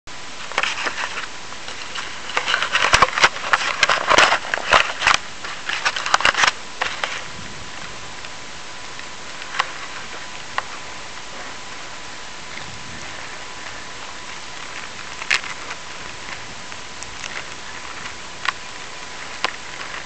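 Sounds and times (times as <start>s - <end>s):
steady hiss: 0.1s - 20.0s
camera handling scrapes and clicks: 0.4s - 7.3s.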